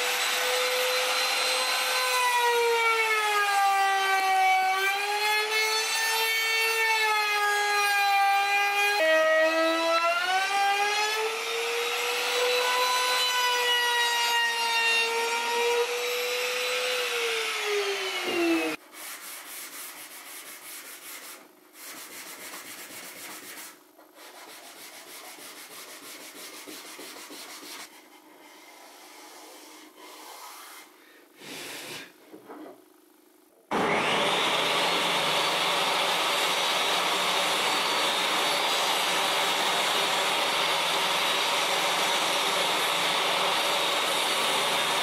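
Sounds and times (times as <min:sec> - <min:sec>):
router whining through wood: 0:00.0 - 0:18.8, 0:33.7 - 0:45.0
sandpaper rubbing on wood: 0:18.9 - 0:30.9.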